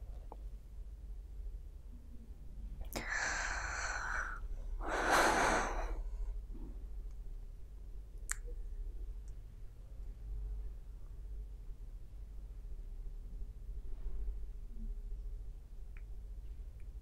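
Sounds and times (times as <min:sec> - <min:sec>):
woman breathing out: 0:03.0 - 0:06.1.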